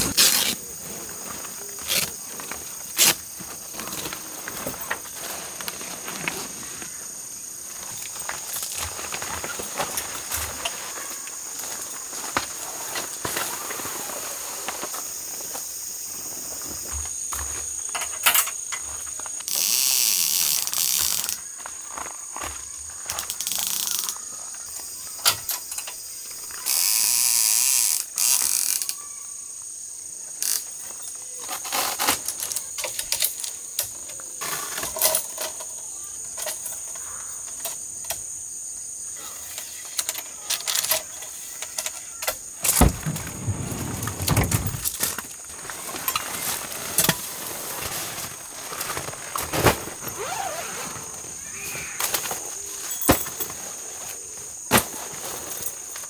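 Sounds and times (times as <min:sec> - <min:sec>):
high insect drone: 0:00.0 - 0:56.0
fabric rustling: 0:42.7 - 0:51.3.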